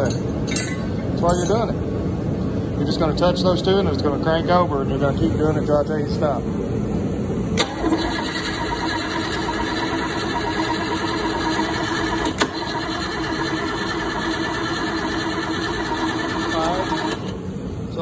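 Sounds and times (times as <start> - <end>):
engine cranking on starter motor: 7.6 - 17.4.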